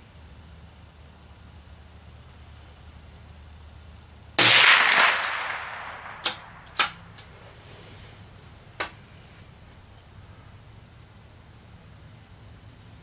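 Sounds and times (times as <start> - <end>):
rifle shots echoing: 4.4 - 7.2.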